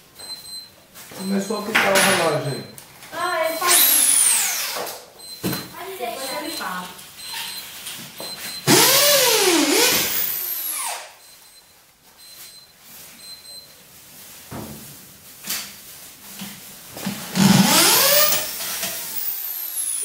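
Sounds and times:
electric drill whine: 3.6s - 4.9s, 8.7s - 11.2s, 17.3s - 20.0s.

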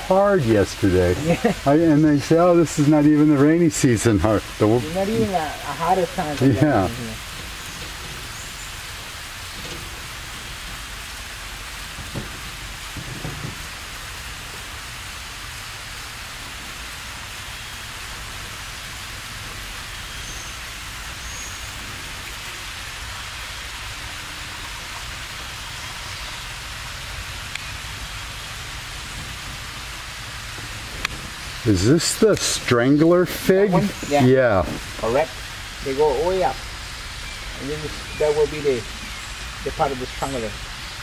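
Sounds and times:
waterfall rushing hiss: 0.0s - 41.0s
soft knocks: 12.0s - 13.7s.

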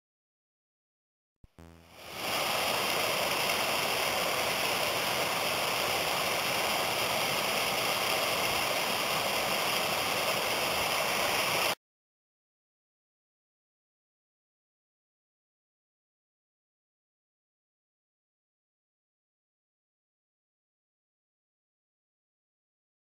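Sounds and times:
stream running over rocks: 2.0s - 11.8s.

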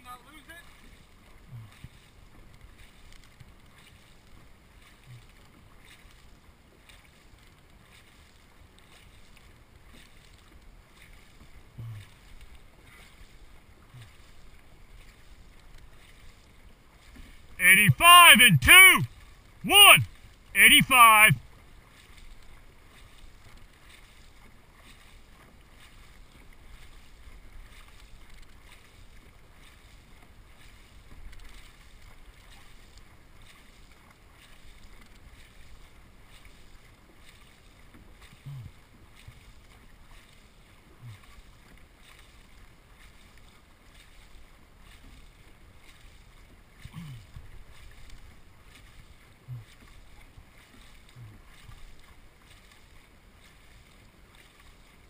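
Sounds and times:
water washing along hull: 0.0s - 17.6s, 19.0s - 55.0s
paddles splashing in water: 0.5s - 55.0s
brief low sounds: 17.6s - 19.0s, 19.7s - 20.0s, 20.6s - 21.4s.

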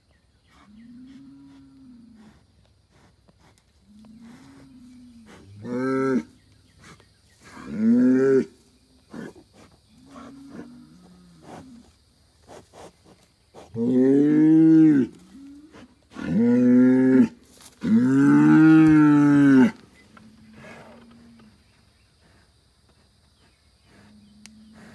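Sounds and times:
bull low moans: 0.5s - 2.5s, 3.8s - 11.9s, 13.8s - 21.7s, 23.8s - 24.9s
bull bellowing: 13.8s - 19.8s.

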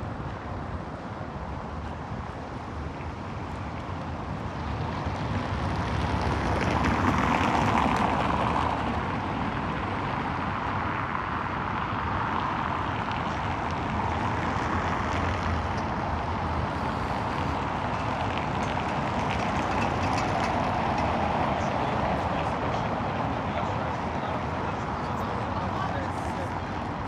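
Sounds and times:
city traffic rushing: 0.0s - 27.0s.

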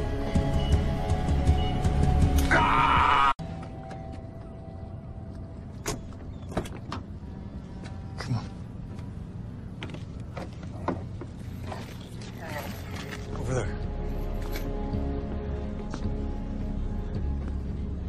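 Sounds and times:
low outdoor rumble: 3.4s - 14.4s.

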